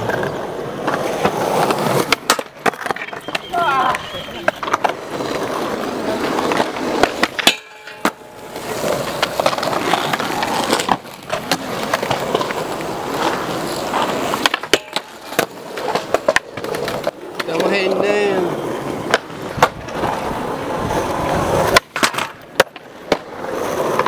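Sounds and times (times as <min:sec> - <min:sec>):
skateboard clacks: 0:00.0 - 0:24.0
skateboard sliding on metal rail: 0:00.0 - 0:24.0
skateboard wheels rolling on concrete: 0:00.0 - 0:24.0.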